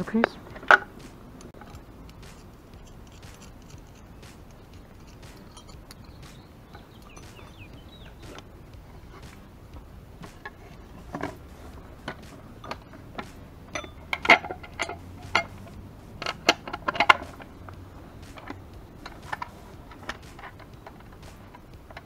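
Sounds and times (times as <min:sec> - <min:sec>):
metallic clicks of bolt and nut: 0:13.7 - 0:15.6.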